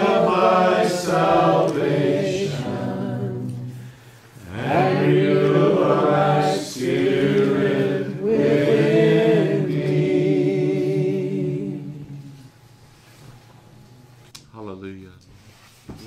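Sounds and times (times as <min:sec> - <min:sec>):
men singing a cappella: 0:00.0 - 0:12.5.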